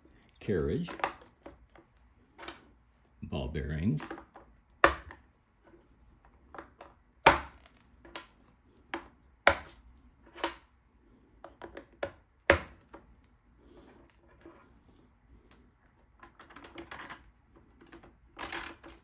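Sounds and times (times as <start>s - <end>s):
metal parts clicking and knocking: 16.2s - 19.0s.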